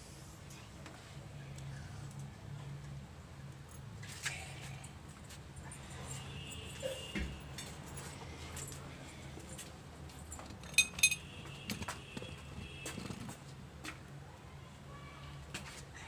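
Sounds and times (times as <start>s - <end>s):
metal utensils clinking: 10.6s - 11.3s.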